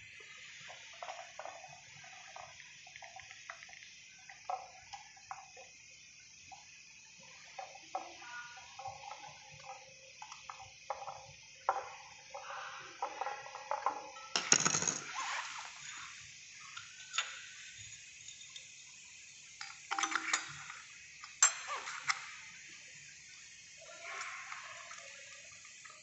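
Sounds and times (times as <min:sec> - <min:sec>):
metal tools clinking: 0:21.4 - 0:21.9.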